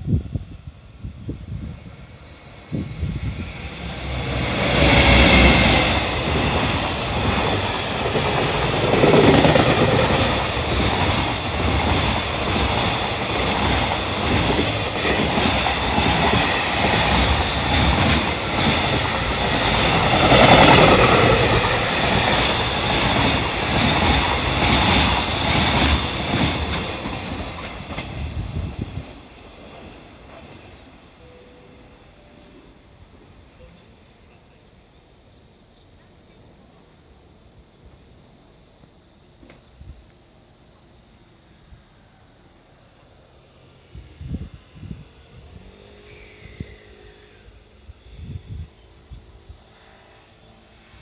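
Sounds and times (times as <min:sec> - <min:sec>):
freight train passing: 0:00.0 - 0:51.0
high whining tones: 0:01.3 - 0:10.7.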